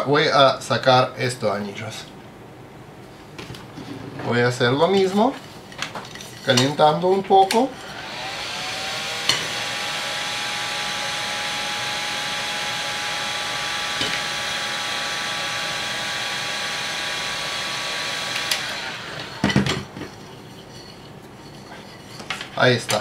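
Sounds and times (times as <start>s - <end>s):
heat gun fan blowing and whining: 6.8s - 20.3s.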